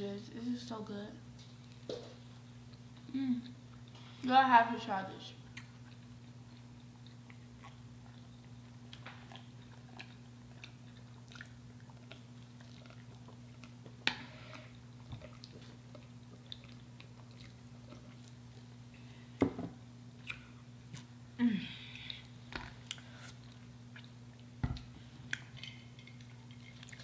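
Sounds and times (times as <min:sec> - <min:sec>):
chewing crispy fried chicken: 0:05.4 - 0:19.1, 0:21.9 - 0:24.6, 0:25.2 - 0:27.0
wet mouth clicks: 0:20.2 - 0:20.6.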